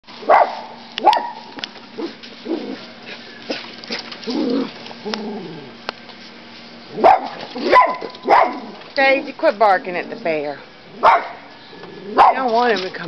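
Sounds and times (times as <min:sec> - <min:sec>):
dog barking: 0:00.3 - 0:01.4, 0:07.0 - 0:08.7, 0:11.0 - 0:11.4, 0:12.2 - 0:12.5.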